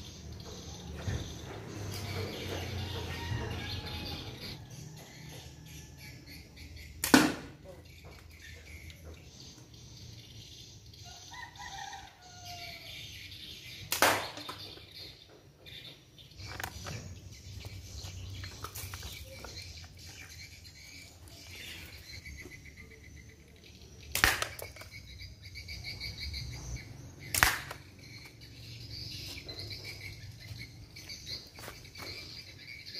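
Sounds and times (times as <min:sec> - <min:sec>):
slingshot shots hitting wooden box: 0:07.0 - 0:07.6, 0:13.9 - 0:14.8, 0:24.1 - 0:25.0, 0:27.3 - 0:27.9.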